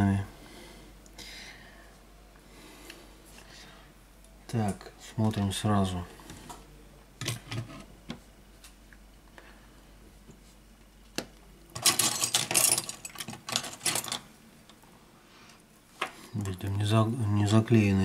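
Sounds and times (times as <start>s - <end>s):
parts clattering and scraping: 7.2s - 7.9s, 11.8s - 14.3s.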